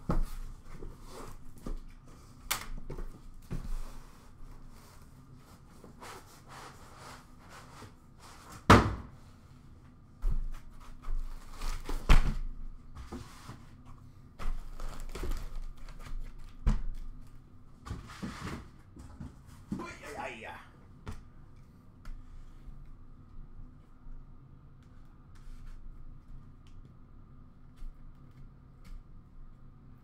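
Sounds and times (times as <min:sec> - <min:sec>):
cardboard and foam rustling: 0:00.0 - 0:08.7, 0:10.3 - 0:13.8, 0:14.4 - 0:17.2.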